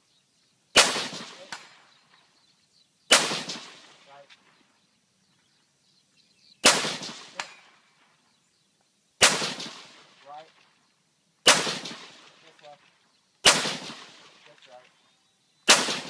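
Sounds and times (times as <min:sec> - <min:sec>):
rifle shots: 0:00.8 - 0:01.9, 0:03.1 - 0:04.2, 0:06.6 - 0:07.8, 0:09.2 - 0:10.6, 0:11.4 - 0:12.8, 0:13.4 - 0:14.7, 0:15.6 - 0:16.0.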